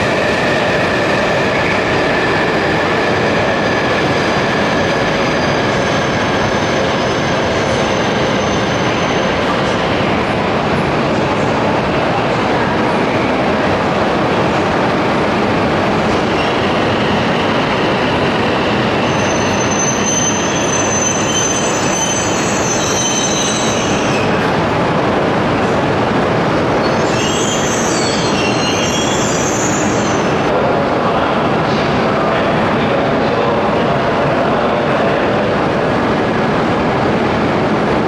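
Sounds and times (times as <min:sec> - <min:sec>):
train wheels squealing: 0:01.6 - 0:09.8, 0:16.3 - 0:24.4, 0:26.8 - 0:30.4.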